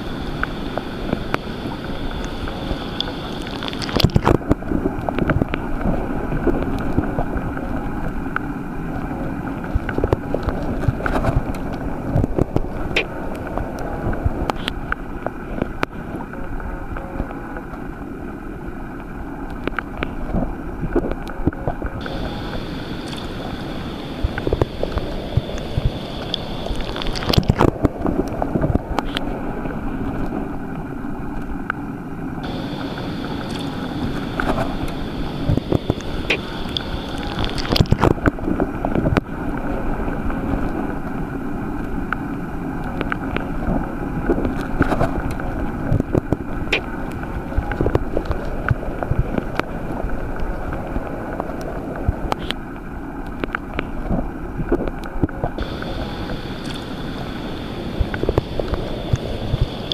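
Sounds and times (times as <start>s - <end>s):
underwater rush of water: 0.0s - 59.9s
irregular clicks and crackles: 0.3s - 8.5s, 19.4s - 29.3s, 32.4s - 39.3s, 53.2s - 59.9s
faint high steady tone: 22.0s - 27.1s, 32.4s - 38.0s, 55.6s - 59.9s.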